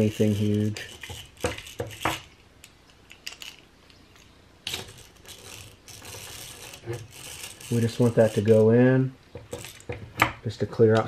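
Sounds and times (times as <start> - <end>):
hand drill gears clicking: 0.0 - 2.3, 4.2 - 8.7, 9.5 - 10.0.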